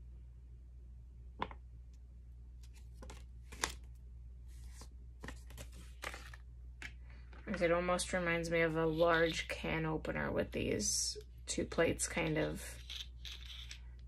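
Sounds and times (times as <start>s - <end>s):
paper rustling: 2.6s - 3.9s, 4.5s - 6.4s.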